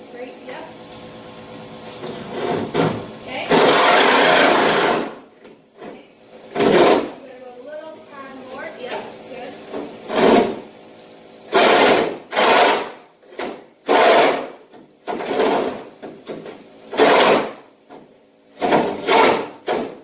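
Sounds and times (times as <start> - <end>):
hand tool rasping strokes: 11.5 - 12.9.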